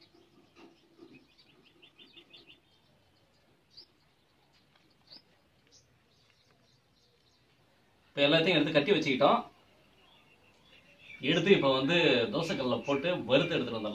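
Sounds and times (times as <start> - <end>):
small bird chirping: 0.0 - 7.6, 9.6 - 11.6.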